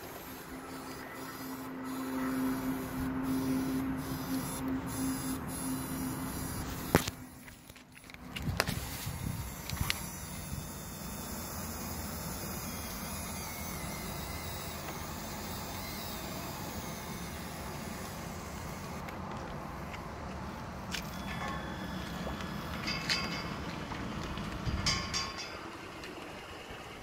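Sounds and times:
small electric motor running: 0:00.0 - 0:19.0.

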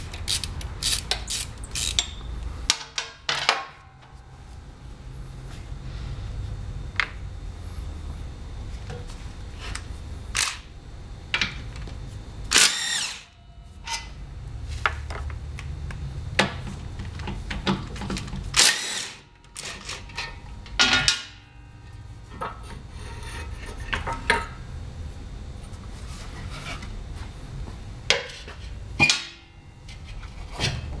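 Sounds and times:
steady low hum: 0:00.0 - 0:31.0
impact wrench spinning bolts: 0:00.1 - 0:02.3, 0:18.5 - 0:20.1
tools and metal parts clinking: 0:17.6 - 0:21.3.

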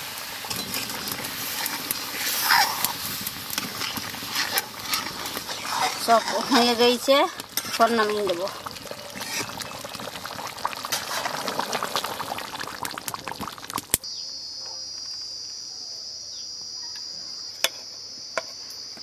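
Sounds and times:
curry boiling and spitting: 0:00.0 - 0:14.1
high insect drone: 0:14.0 - 0:19.0.

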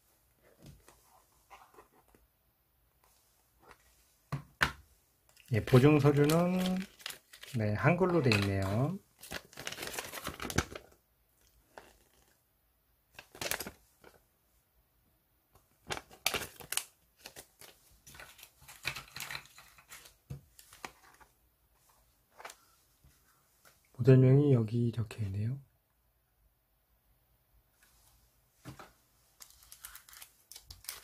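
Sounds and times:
paper rustling and crinkling: 0:05.3 - 0:12.4, 0:13.2 - 0:14.2, 0:15.8 - 0:23.8, 0:28.6 - 0:31.0.

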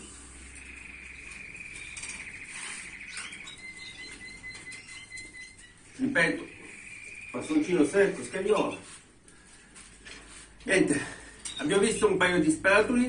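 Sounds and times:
birds rustling in cages: 0:00.0 - 0:12.1
canary trilling: 0:00.4 - 0:08.2.

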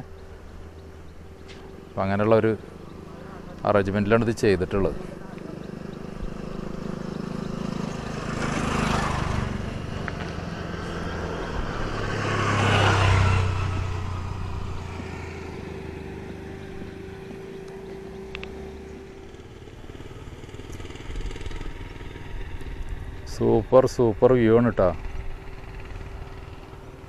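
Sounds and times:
motor vehicles passing: 0:00.0 - 0:27.0
steady engine hum: 0:00.0 - 0:27.0.

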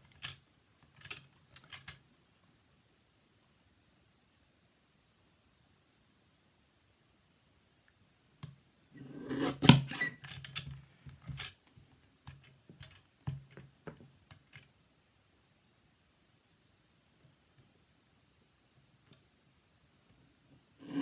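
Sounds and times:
paper trimmer blade scraping: 0:09.0 - 0:10.2.

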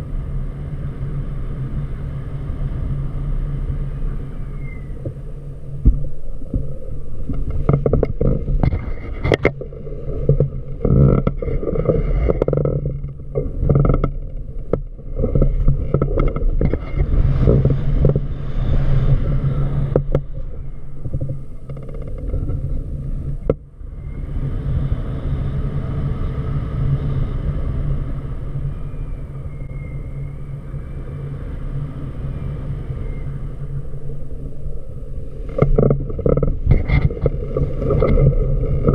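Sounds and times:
wind buffeting microphone: 0:00.0 - 0:38.9
knocks and rustles: 0:05.8 - 0:18.2.

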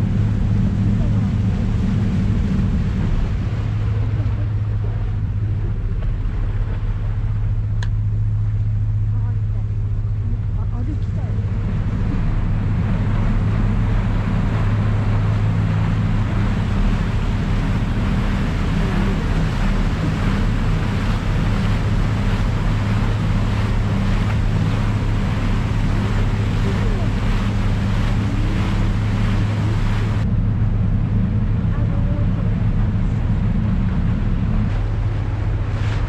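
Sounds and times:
ship engine humming: 0:00.0 - 0:36.0
wake churning through ice: 0:11.3 - 0:30.3, 0:33.0 - 0:36.0.

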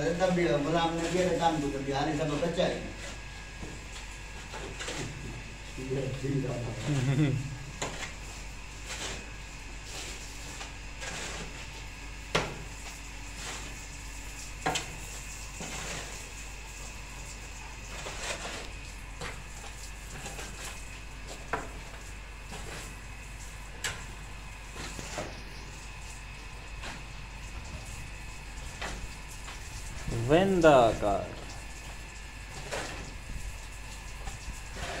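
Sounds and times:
spades scraping cement and sand: 0:00.0 - 0:05.2, 0:05.8 - 0:12.0, 0:12.6 - 0:31.4, 0:32.5 - 0:33.4, 0:34.2 - 0:35.0.

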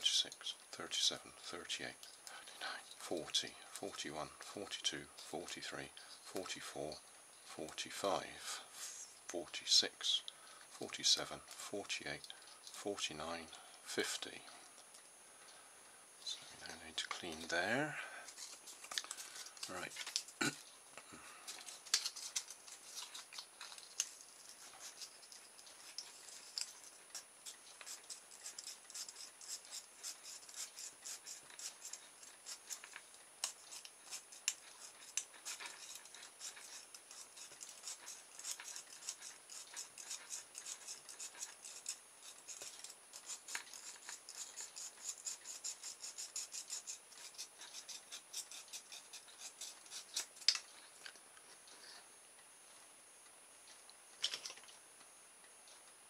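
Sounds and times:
abrasive paper scraping wire: 0:21.4 - 0:50.6.

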